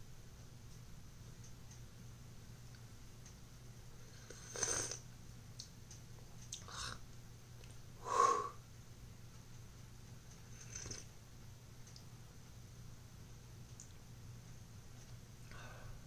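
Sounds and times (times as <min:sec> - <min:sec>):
person slurping from a mug: 0:04.3 - 0:05.0.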